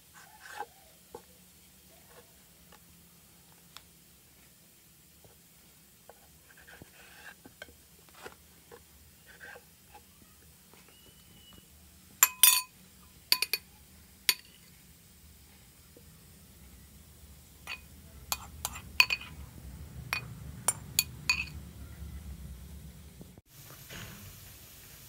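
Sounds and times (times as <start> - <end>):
metal spoon clinking on glass bowl: 12.2 - 12.7, 13.3 - 13.7, 14.3 - 14.6, 17.7 - 19.4, 20.1 - 21.6.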